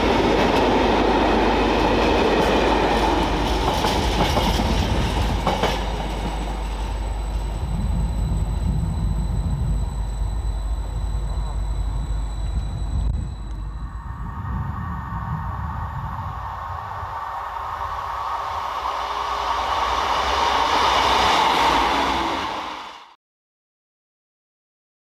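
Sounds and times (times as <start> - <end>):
freight wagons clattering on rails: 2.4 - 7.7
low rumble: 7.1 - 22.8.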